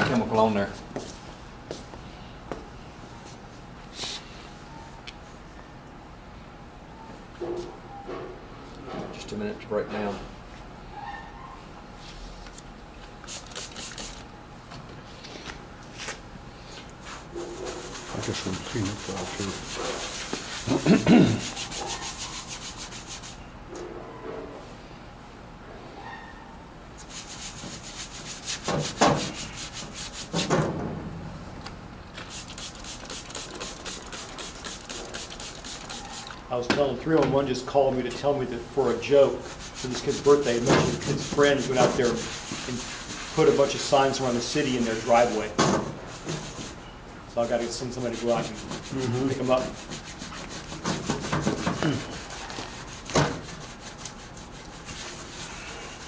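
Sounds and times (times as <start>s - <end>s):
rag scrubbing metal sign: 32.3s - 36.4s, 47.6s - 55.6s.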